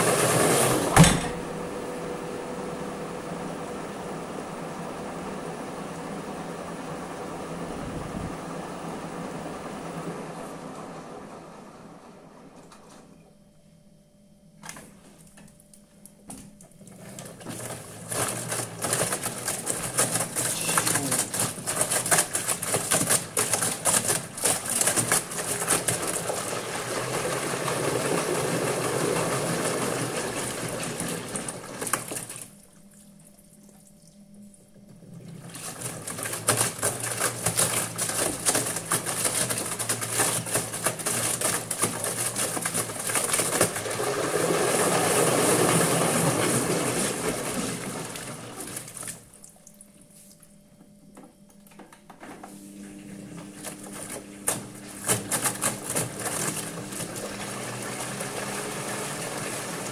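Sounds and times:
washing machine motor hum: 0:00.0 - 0:59.9
wet laundry sloshing and tumbling: 0:16.7 - 0:50.6, 0:52.5 - 0:59.9.

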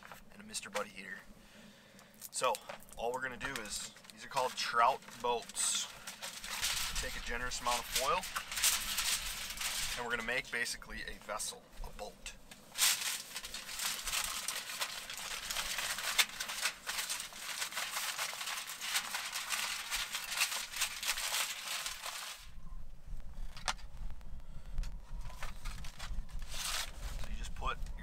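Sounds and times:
aluminium foil crinkling: 0:02.0 - 0:22.6, 0:25.2 - 0:28.0.

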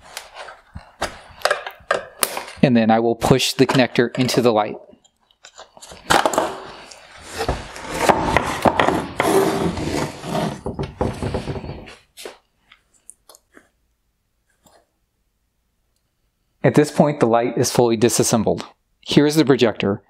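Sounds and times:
plastic housing knocking and scraping: 0:07.4 - 0:12.0.

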